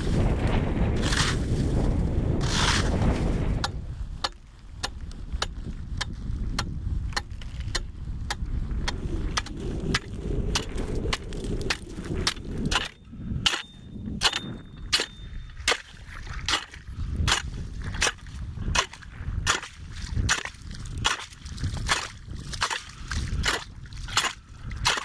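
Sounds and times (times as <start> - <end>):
sharp pops and cracks: 15.7 - 25.0.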